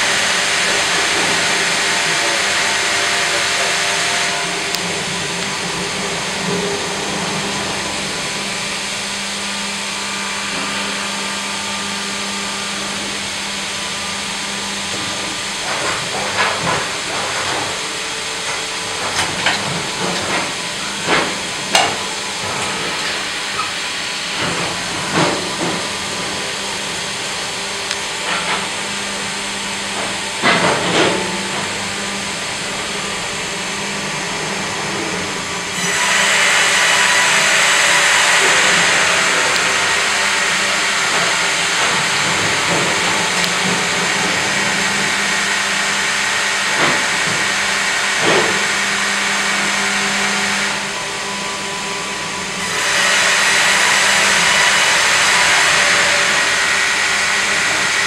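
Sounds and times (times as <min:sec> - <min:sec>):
sawmill machinery running: 0:00.0 - 0:58.0
band saw hissing through log: 0:35.8 - 0:43.3, 0:43.9 - 0:58.0.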